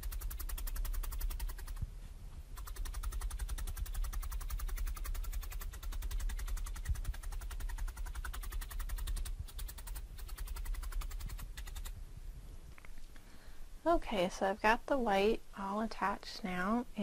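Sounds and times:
felting needle clicking: 0.0s - 1.8s, 2.6s - 12.0s.

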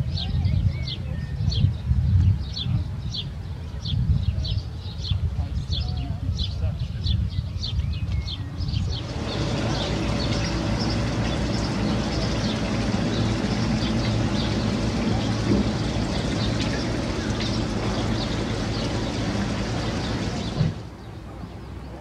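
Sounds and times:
fountain water splashing: 9.0s - 21.0s.

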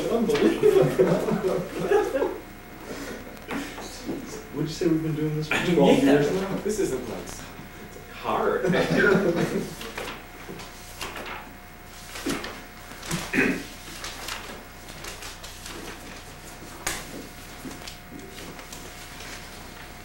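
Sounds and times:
paper rustling: 9.0s - 20.0s.

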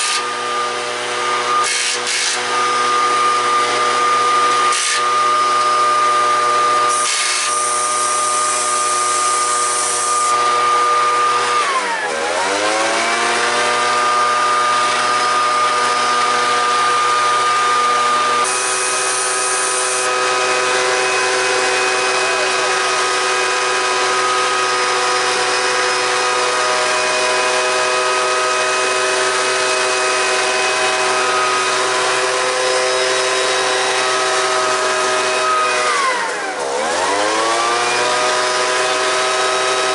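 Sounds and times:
turbocharger high whine: 18.1s - 37.2s.

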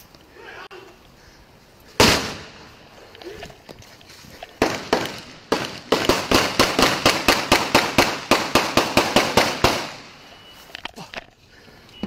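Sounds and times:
gunshots: 2.0s - 2.7s, 4.6s - 10.2s.

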